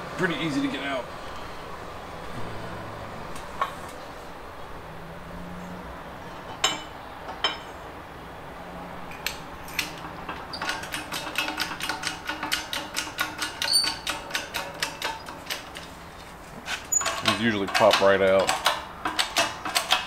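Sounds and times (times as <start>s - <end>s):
jack pump handle clicking: 9.1s - 15.9s, 16.8s - 20.0s
metal clicks of hub: 9.1s - 20.0s.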